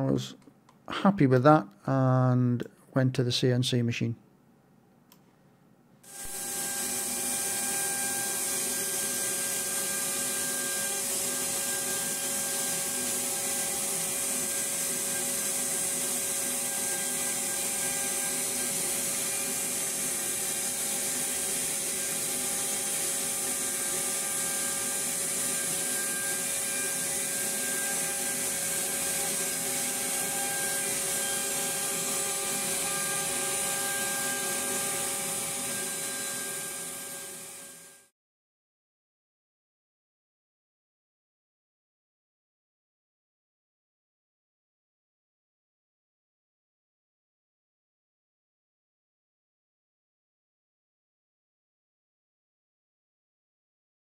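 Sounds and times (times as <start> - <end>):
router spindle whine: 6.1 - 38.1.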